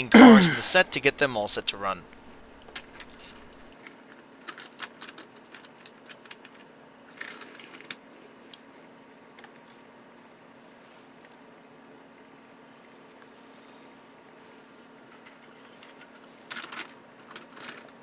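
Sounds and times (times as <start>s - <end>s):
faint plastic clicks and rattles: 2.6s - 8.6s, 15.1s - 18.0s.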